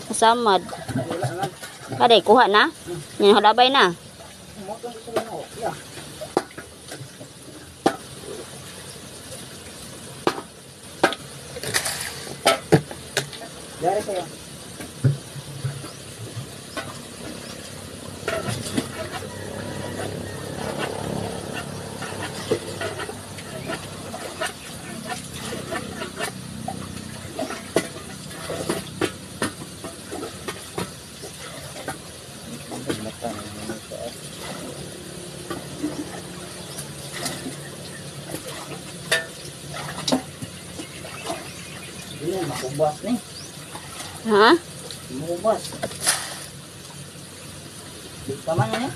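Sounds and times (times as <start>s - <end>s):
faint water sloshing: 11.4s - 48.9s.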